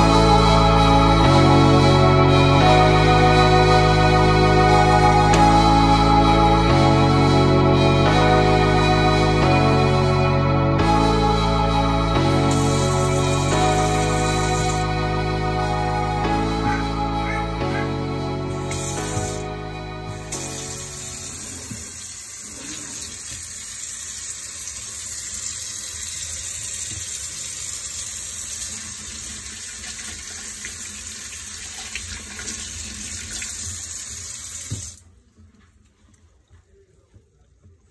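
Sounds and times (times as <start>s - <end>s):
faucet running into metal sink: 20.3s - 35.0s.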